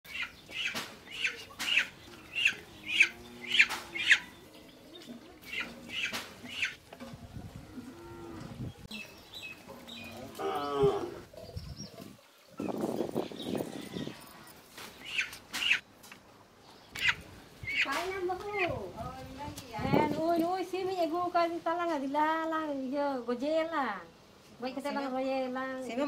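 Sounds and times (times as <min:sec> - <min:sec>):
bird calling: 0:00.1 - 0:06.8, 0:14.9 - 0:15.8
cow mooing: 0:07.6 - 0:08.6, 0:10.0 - 0:11.3.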